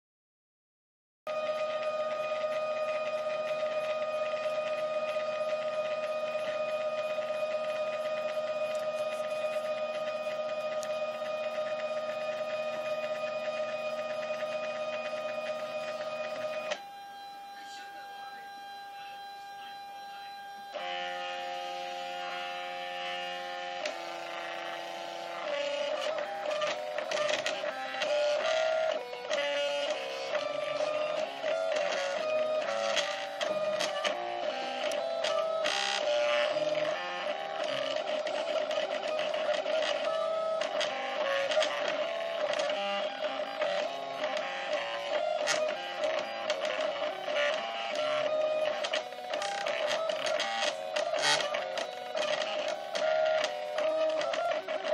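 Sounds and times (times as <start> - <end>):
stepper motors whining tones: 1.3 - 54.9.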